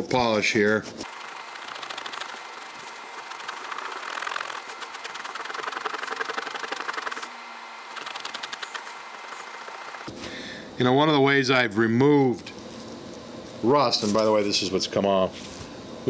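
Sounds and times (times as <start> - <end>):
cloth pad rubbing metal: 1.0 - 10.1.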